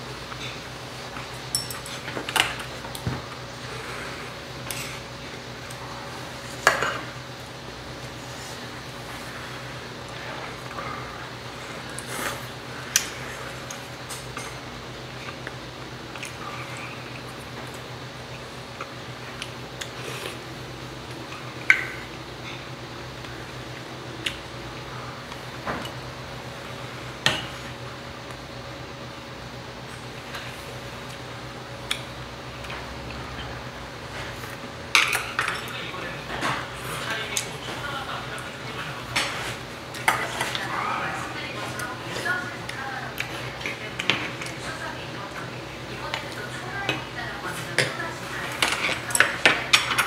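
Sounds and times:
faint steady hum: 0.0 - 50.0
spoons clinking against bowls: 1.5 - 2.6.

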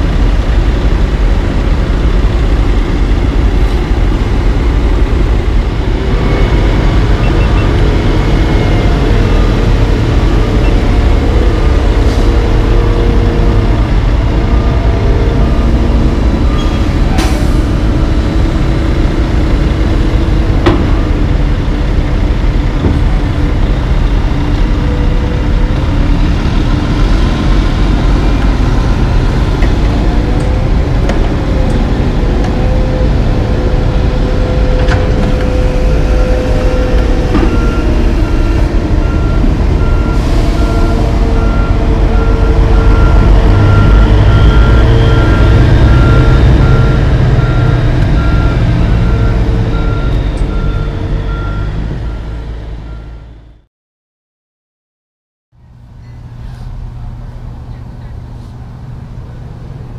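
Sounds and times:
heavy diesel engines running: 0.0 - 53.7, 55.6 - 59.9
reversing alarm beeping: 34.4 - 53.6.

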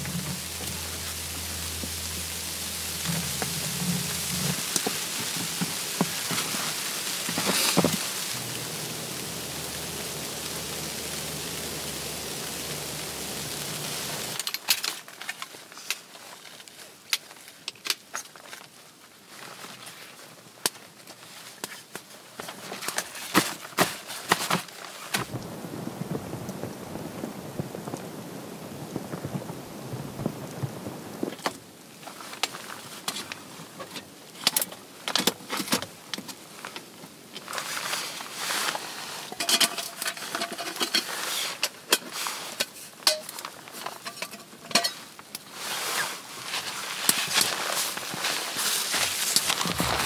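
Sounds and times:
steady rushing hiss: 0.0 - 15.1, 25.1 - 34.3, 36.4 - 50.0.

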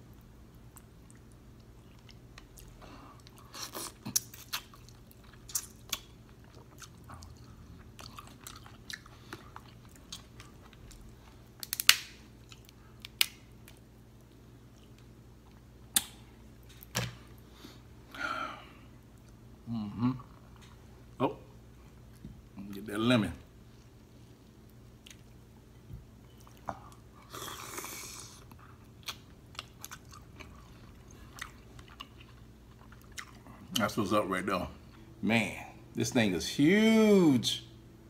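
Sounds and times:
chewing: 0.7 - 11.5, 26.3 - 33.8
crab shells cracking: 11.6 - 13.8.

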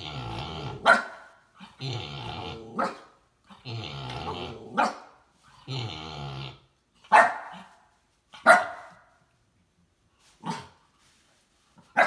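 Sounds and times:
puppy growling: 0.0 - 4.9, 5.6 - 6.8
puppy barking: 0.8 - 1.4, 2.8 - 3.2, 4.8 - 5.2, 7.1 - 7.8, 8.4 - 9.2.

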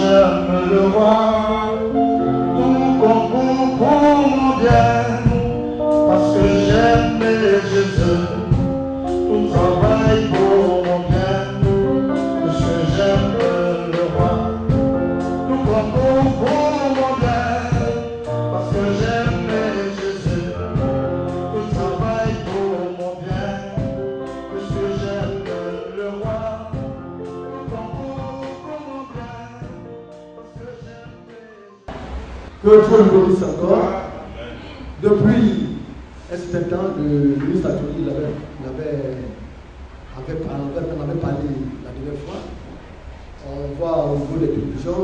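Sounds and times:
person singing over a beat: 0.0 - 31.9.

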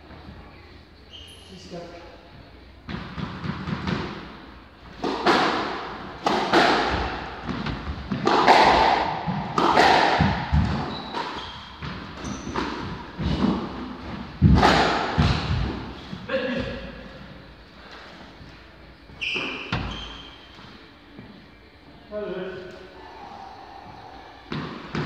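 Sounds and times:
shoes squeaking on wooden floor: 1.1 - 1.8, 9.2 - 20.9
squash ball hits echoing: 2.9 - 4.4, 5.0 - 16.9, 19.3 - 20.3, 24.4 - 25.0.

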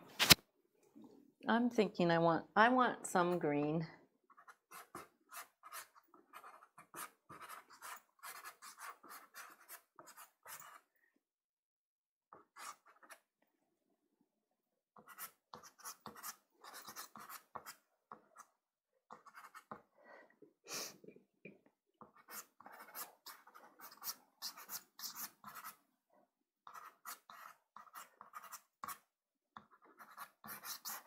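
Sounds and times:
pastel scratching on paper: 4.3 - 10.9, 12.4 - 13.2, 15.0 - 18.5, 19.1 - 19.8, 22.1 - 25.8, 26.7 - 31.0.

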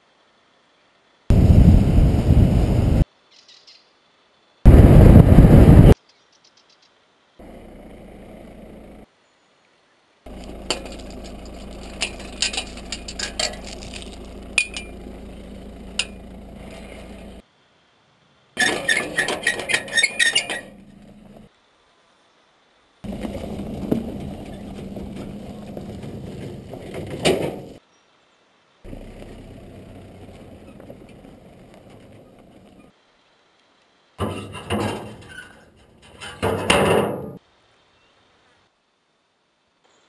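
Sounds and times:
outdoor rumble: 1.3 - 3.0, 4.7 - 6.0, 7.4 - 9.1, 10.3 - 17.4, 18.6 - 21.5, 23.0 - 27.8, 28.9 - 32.9, 34.2 - 37.4
car towing trailer on dirt track: 7.4 - 9.1, 10.3 - 17.4, 18.6 - 21.5, 23.0 - 27.8, 28.9 - 32.9, 34.2 - 37.4.

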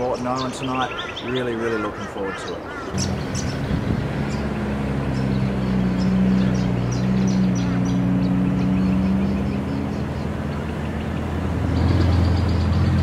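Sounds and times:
vehicle engine driving past: 3.0 - 13.0.

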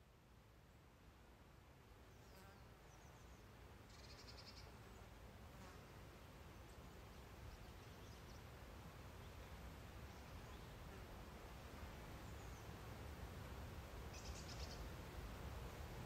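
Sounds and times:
faint high bird chirps: 2.1 - 4.8, 14.1 - 14.9.

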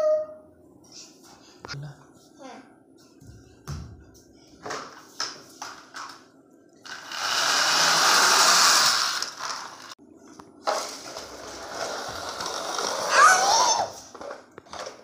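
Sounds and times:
toy wheels rolling on hard floor: 6.8 - 10.0, 10.6 - 15.0.

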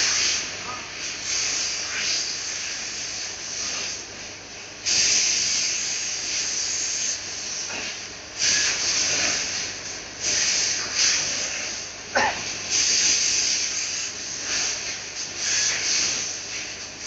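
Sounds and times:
laser cutter gas jet hiss: 0.0 - 17.0.

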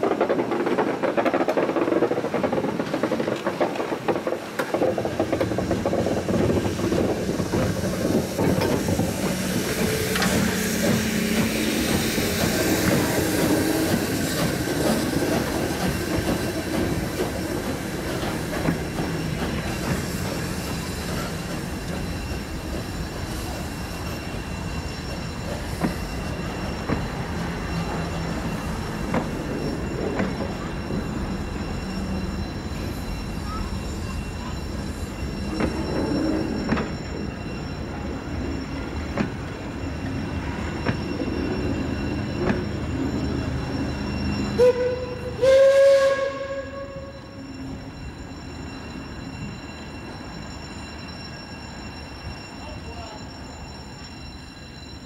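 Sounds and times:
wheels clicking over rail joints: 0.0 - 21.3
train coaches rumbling past: 0.0 - 55.0
steam locomotive whistle: 44.4 - 47.4.

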